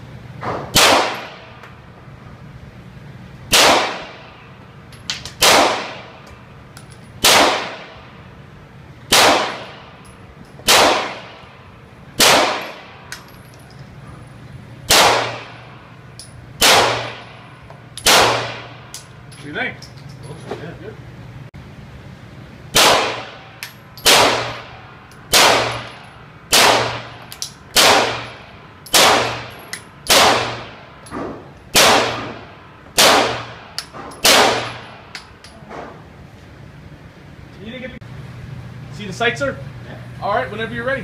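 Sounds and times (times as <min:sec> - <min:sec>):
pistol shots with ringing echo: 0:00.7 - 0:01.6, 0:03.5 - 0:04.5, 0:05.4 - 0:06.2, 0:07.2 - 0:08.2, 0:09.1 - 0:10.0, 0:10.6 - 0:13.2, 0:14.9 - 0:15.9, 0:16.6 - 0:17.4, 0:18.0 - 0:18.9, 0:22.7 - 0:35.2.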